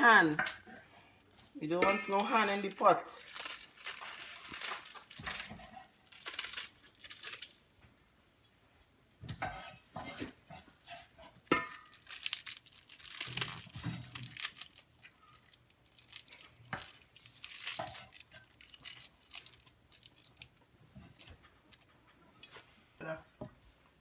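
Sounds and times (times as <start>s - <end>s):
leaves rustling: 1.8s - 5.5s.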